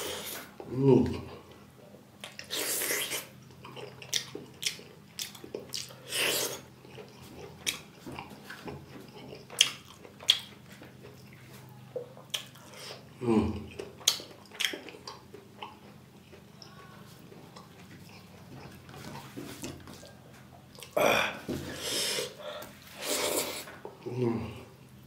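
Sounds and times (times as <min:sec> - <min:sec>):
wet chewing: 0:02.2 - 0:21.0
mouth clicks and lip smacks: 0:12.2 - 0:12.7.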